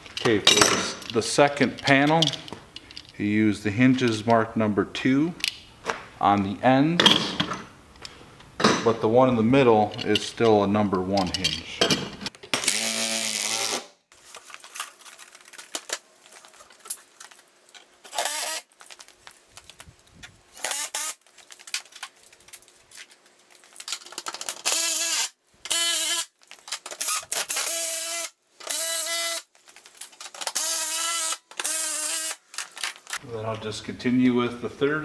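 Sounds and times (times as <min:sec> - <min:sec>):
cordless drill driving screws: 0:12.6 - 0:13.8, 0:18.1 - 0:18.7, 0:20.6 - 0:21.2.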